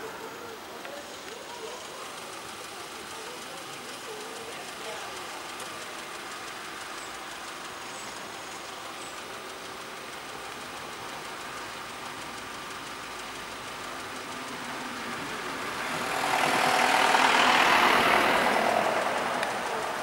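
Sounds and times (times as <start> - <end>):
car engines idling: 0.0 - 20.0
vehicle passing close by: 14.1 - 20.0.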